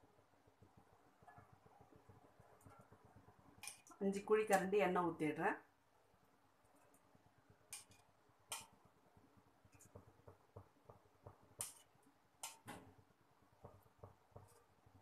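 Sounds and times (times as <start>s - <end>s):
ladle tapping metal pot: 7.7s - 8.8s, 9.8s - 12.8s.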